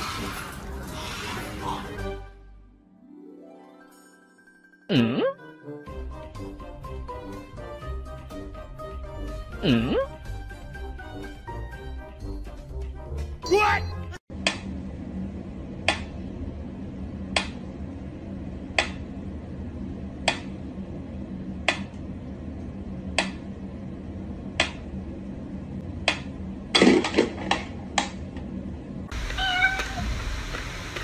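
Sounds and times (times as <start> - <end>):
low steady hum: 14.3 - 31.0.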